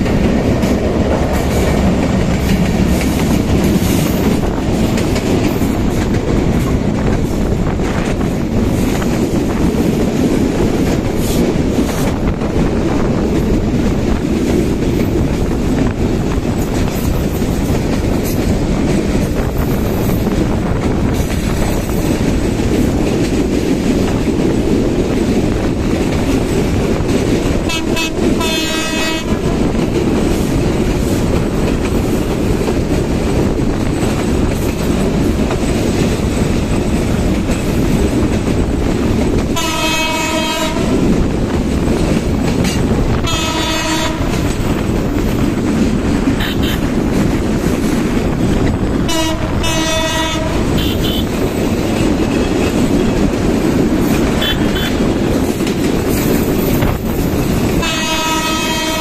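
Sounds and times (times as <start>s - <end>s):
passenger train rushing: 0.0s - 59.0s
wind on microphone: 0.0s - 59.0s
train horn blasts: 27.6s - 29.6s, 39.6s - 41.1s, 43.1s - 44.4s, 46.4s - 46.9s, 49.0s - 51.4s, 54.4s - 55.0s, 57.8s - 59.0s.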